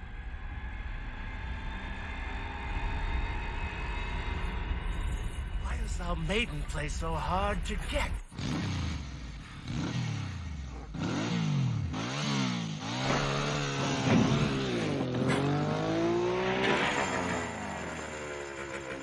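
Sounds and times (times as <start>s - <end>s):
dune buggy engine revving: 7.7s - 19.0s.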